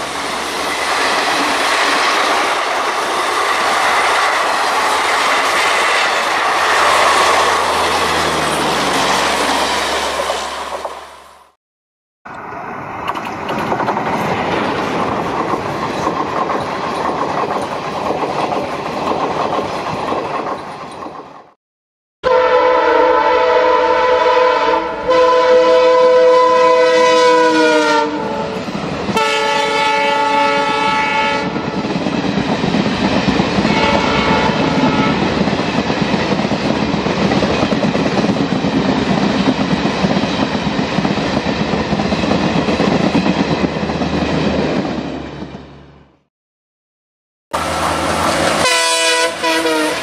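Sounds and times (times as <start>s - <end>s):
train rumbling past on rails: 0.0s - 11.6s, 12.3s - 21.6s, 22.3s - 46.3s, 47.6s - 50.0s
train air horn blasts: 22.2s - 31.6s, 33.7s - 35.3s, 48.4s - 50.0s.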